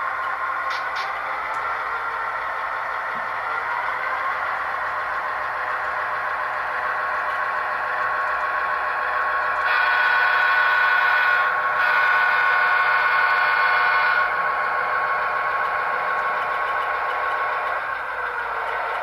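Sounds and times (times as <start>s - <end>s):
diesel engine sound from speaker: 0.0s - 19.0s
model train horn blasts: 9.6s - 14.4s.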